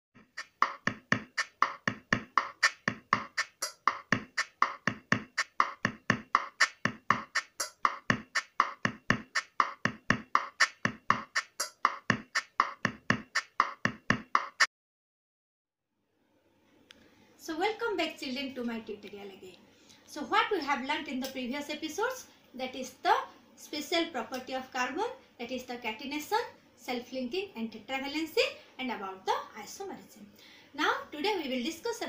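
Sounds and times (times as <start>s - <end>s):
fast percussive intro music: 0.2s - 14.7s.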